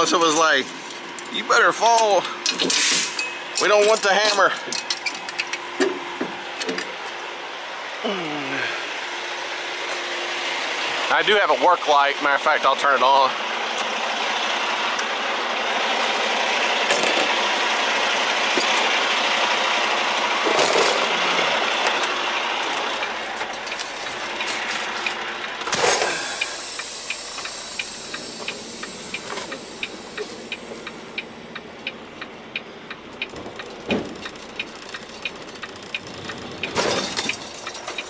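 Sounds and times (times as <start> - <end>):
truck engine running: 0.0 - 38.0
regular ticking: 26.4 - 38.0.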